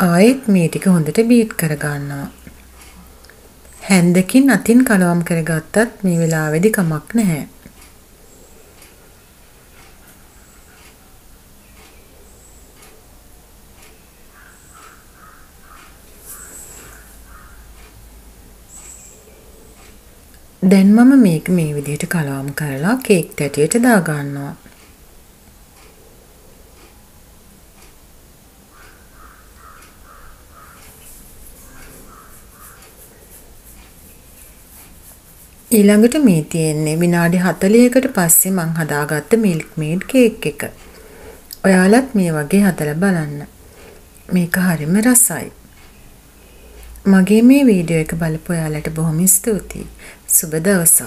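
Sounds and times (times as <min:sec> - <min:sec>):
crow cawing: 0:14.4 - 0:17.7, 0:28.7 - 0:31.0, 0:31.6 - 0:32.9.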